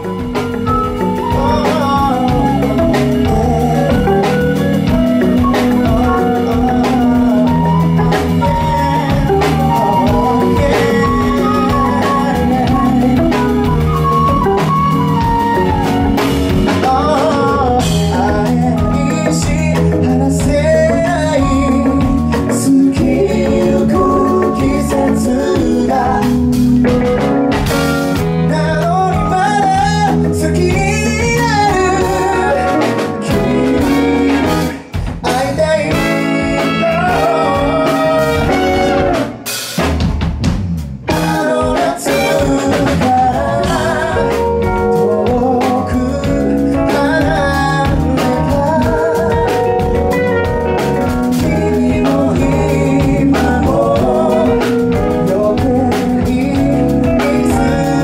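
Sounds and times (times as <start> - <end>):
flute: 0.0 - 19.5, 35.9 - 39.4
man singing: 0.0 - 27.2, 28.1 - 39.3, 41.1 - 58.0
keyboard: 0.0 - 39.5, 41.1 - 58.0
drums: 0.0 - 58.0.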